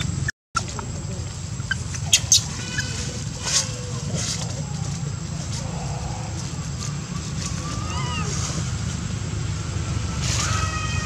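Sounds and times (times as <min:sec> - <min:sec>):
monkeys chirping and squeaking: 0:00.0 - 0:08.8
steady low hum: 0:00.0 - 0:10.4
dry leaves rustling and crackling: 0:00.6 - 0:11.0.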